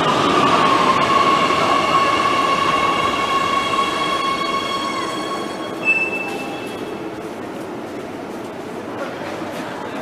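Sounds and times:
train high whine: 0:00.0 - 0:08.0
train rumbling running noise: 0:00.0 - 0:10.0.

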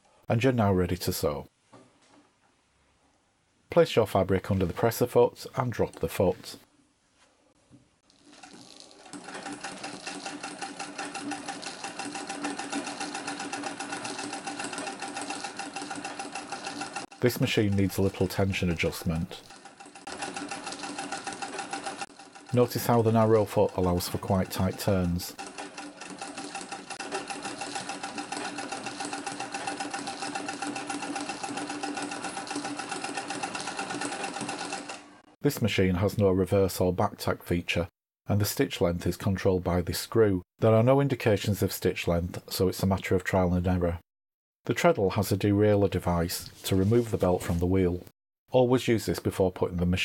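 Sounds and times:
sewing machine clicking: 0:08.0 - 0:35.4.

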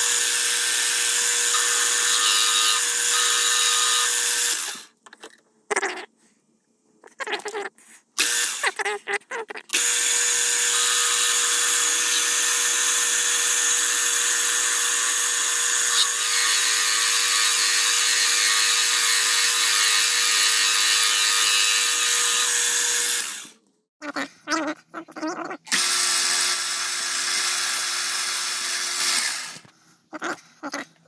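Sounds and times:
milling machine cutting metal: 0:00.0 - 0:04.8, 0:09.8 - 0:23.5.

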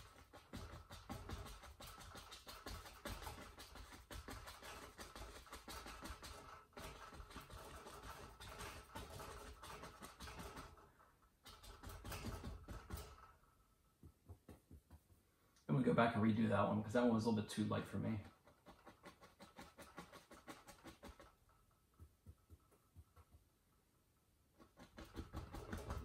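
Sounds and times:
brush scraping paint on canvas: 0:00.0 - 0:11.0, 0:17.9 - 0:23.4, 0:24.5 - 0:26.0.

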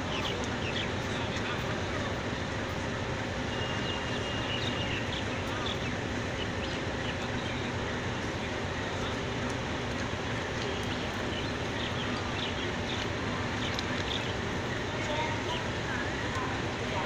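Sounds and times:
diesel engine running under load: 0:00.0 - 0:17.0
faint high chirps: 0:03.5 - 0:07.7.

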